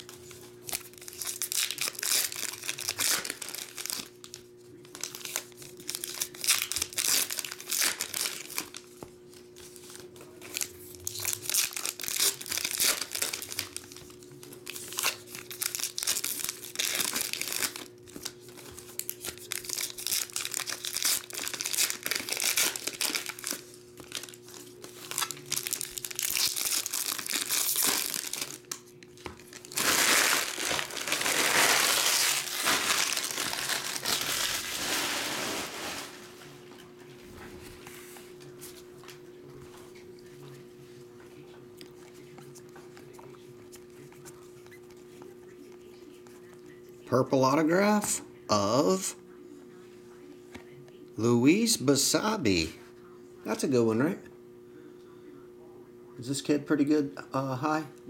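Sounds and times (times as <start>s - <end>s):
steady hum: 0.0s - 58.0s
wrappers tearing and crinkling: 0.6s - 8.9s, 9.8s - 36.4s.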